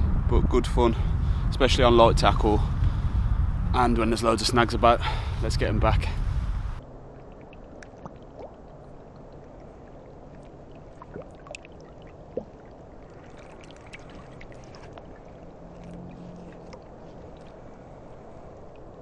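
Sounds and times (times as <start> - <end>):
river water lapping and trickling: 6.8 - 19.0
water drips and plops: 7.1 - 18.9.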